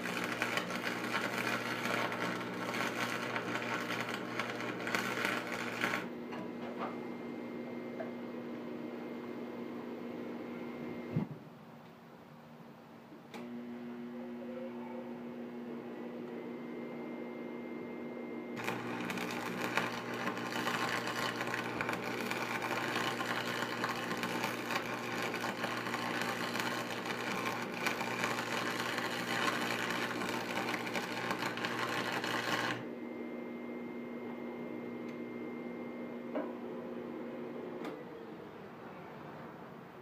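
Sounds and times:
welding arc crackling and sizzling: 0:00.0 - 0:06.2, 0:18.6 - 0:32.9.

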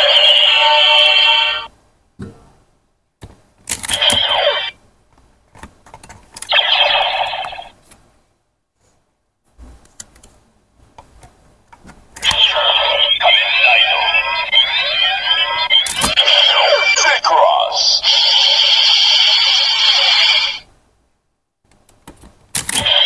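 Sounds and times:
toy electronic sound effects: 0:00.0 - 0:01.7, 0:03.9 - 0:04.8, 0:06.5 - 0:07.8, 0:12.2 - 0:20.7, 0:22.7 - 0:23.0.

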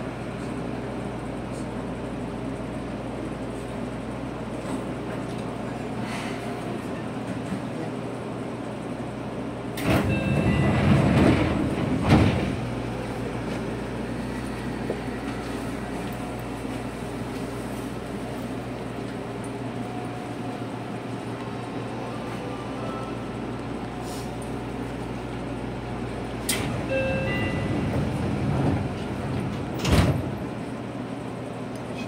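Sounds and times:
train humming at platform: 0:00.0 - 0:32.0
sliding train doors: 0:09.7 - 0:32.0.

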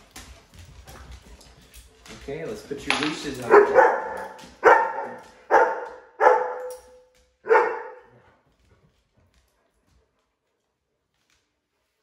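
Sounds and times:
dog barking: 0:03.4 - 0:08.2.

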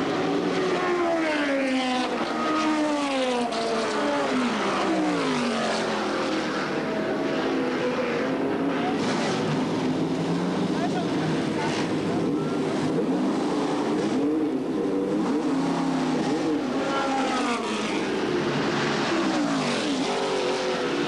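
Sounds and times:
racing cars passing at speed: 0:00.0 - 0:21.0.

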